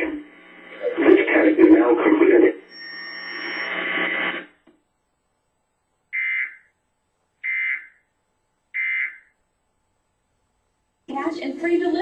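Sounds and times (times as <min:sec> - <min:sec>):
shrill buzzing data tone bursts: 0:02.6 - 0:04.3.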